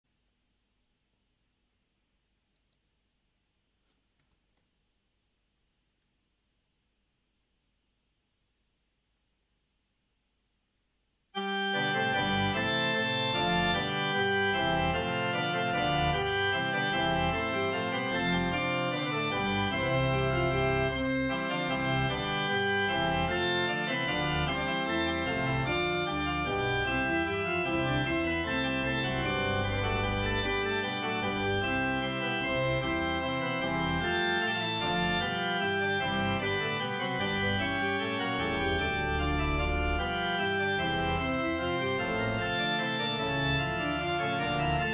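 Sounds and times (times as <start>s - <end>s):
organ music chords: 11.4s - 44.9s.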